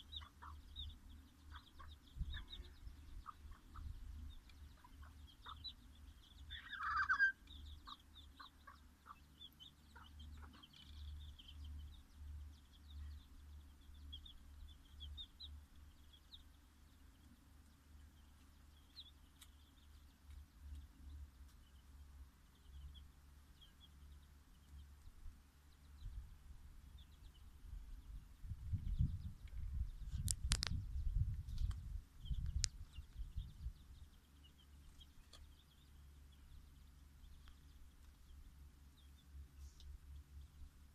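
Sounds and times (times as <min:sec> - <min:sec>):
hen clucking: 0:00.0 - 0:00.8, 0:01.4 - 0:05.8, 0:06.4 - 0:10.8
chicks peeping: 0:00.0 - 0:40.9.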